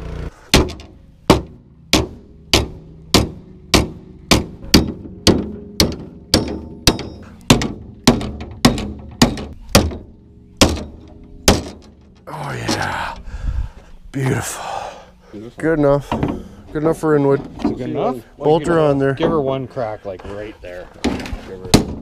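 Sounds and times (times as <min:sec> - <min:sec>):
hammer striking sheet metal: 0:00.5 - 0:11.9.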